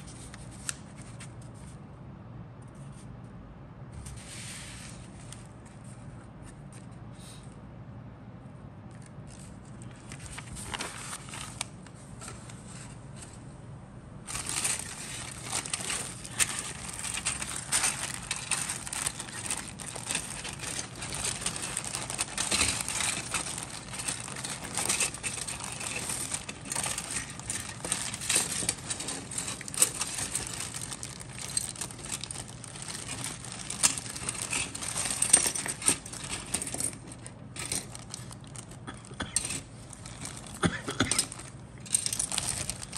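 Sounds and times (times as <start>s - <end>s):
paper rustling: 0.0s - 1.8s, 9.0s - 13.4s, 14.2s - 42.9s
plastic bag crinkling: 9.3s - 11.8s, 14.2s - 42.9s
plastic parts clicking together: 14.3s - 38.8s.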